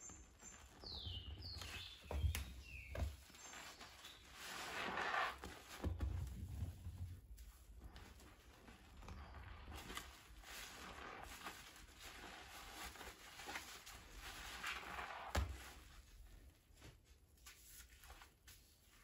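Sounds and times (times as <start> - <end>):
wet sponge squishing: 0.0 - 17.0
foam bubbles crackling: 7.3 - 15.4.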